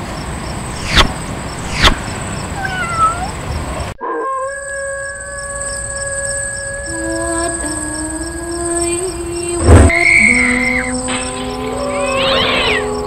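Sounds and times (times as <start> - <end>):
insect trill: 0.2 - 13.0
dog howling: 4.0 - 13.0.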